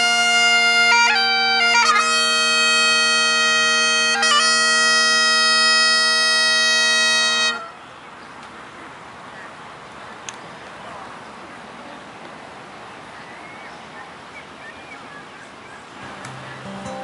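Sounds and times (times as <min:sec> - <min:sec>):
bagpipe playing: 0:00.0 - 0:07.8.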